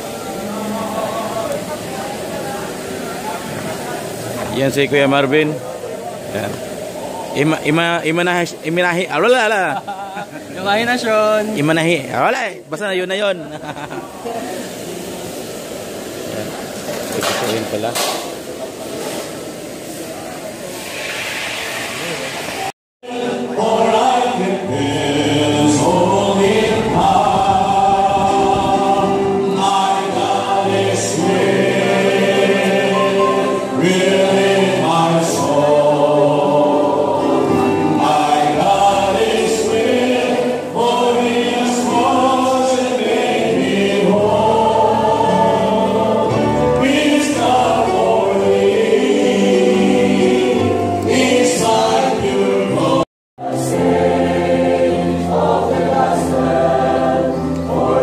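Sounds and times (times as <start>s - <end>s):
group singing a hymn: 0.0s - 5.6s, 23.0s - 58.0s.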